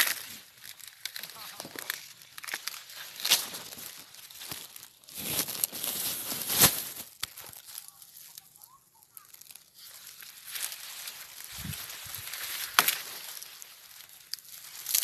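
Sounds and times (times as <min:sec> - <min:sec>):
dry corn leaves rustling: 0:00.0 - 0:15.0
sharp crack: 0:12.2 - 0:15.0.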